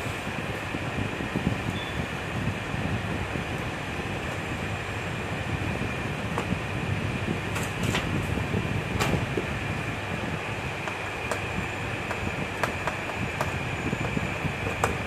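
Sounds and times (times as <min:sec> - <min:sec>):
fan hum: 0:00.0 - 0:15.0.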